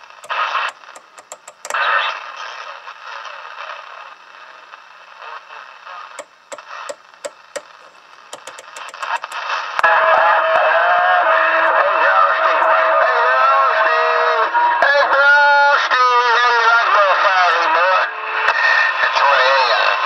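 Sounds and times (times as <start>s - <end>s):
radio static and hiss: 0.0s - 10.3s
channel selector clicks: 0.2s - 1.8s, 6.2s - 9.4s.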